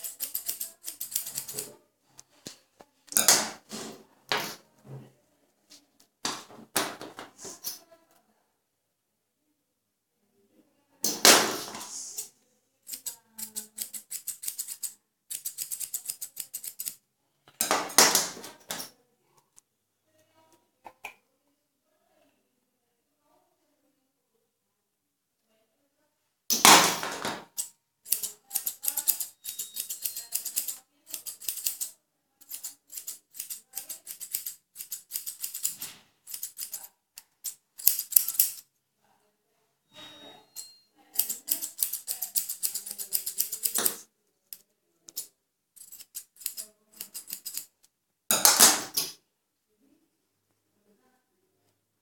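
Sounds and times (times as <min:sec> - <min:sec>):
scissors snipping hair: 0:00.0 - 0:01.7, 0:12.0 - 0:17.0, 0:27.5 - 0:38.7, 0:41.1 - 0:47.7.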